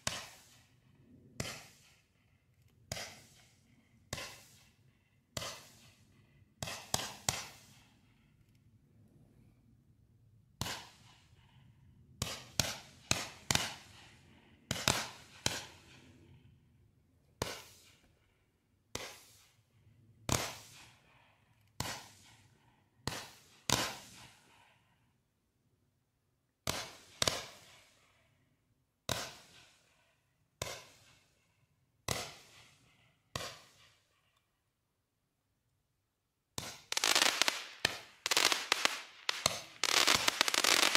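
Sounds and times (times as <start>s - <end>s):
firework launch pops: 0.0s - 0.7s, 1.4s - 2.0s, 2.9s - 4.7s, 5.4s - 6.0s, 6.6s - 7.8s, 10.6s - 11.2s, 14.7s - 15.8s, 17.4s - 18.0s, 18.9s - 19.6s, 20.3s - 20.9s, 21.8s - 22.4s, 23.0s - 24.4s, 26.6s - 27.9s, 29.1s - 29.8s, 30.6s - 31.2s, 32.1s - 34.0s, 36.6s - 40.9s.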